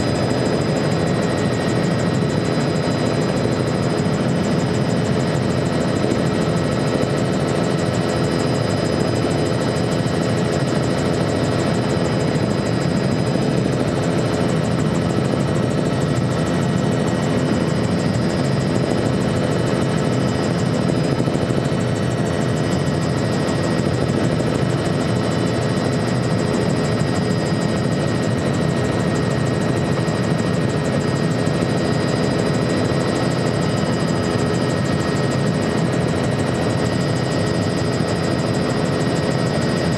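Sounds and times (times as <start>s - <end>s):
helicopter engine and rotor drone: 0.0s - 39.9s.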